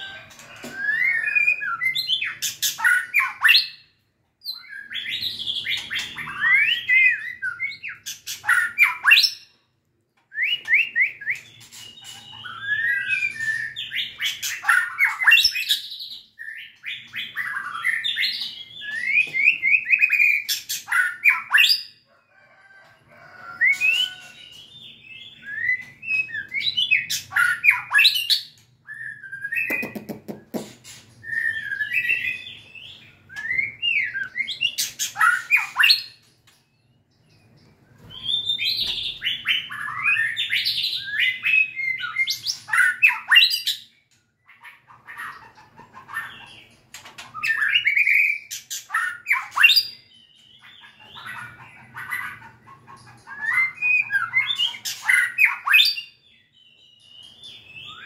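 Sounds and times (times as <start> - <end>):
bird singing whistled phrases: 56.8 - 58.0.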